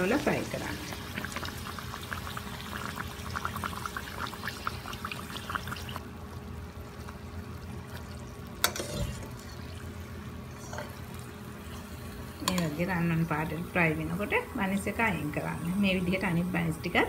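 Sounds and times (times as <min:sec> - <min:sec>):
buns deep-frying in hot oil: 0:00.0 - 0:17.0
low steady hum: 0:00.0 - 0:17.0.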